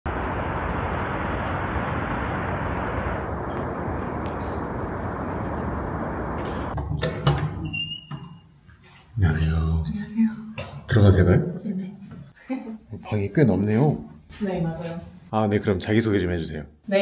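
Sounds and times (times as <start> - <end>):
outdoor rushing noise: 0.1 - 6.8
low hum: 0.1 - 7.7.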